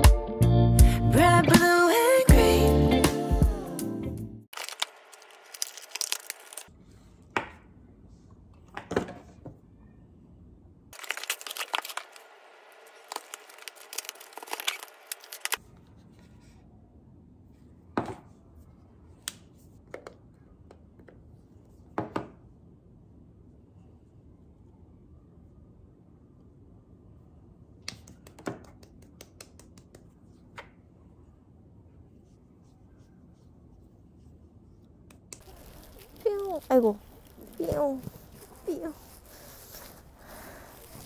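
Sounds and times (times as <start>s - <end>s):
paper packing crinkling: 4.5s - 6.7s, 11.0s - 15.6s, 35.4s - 41.0s.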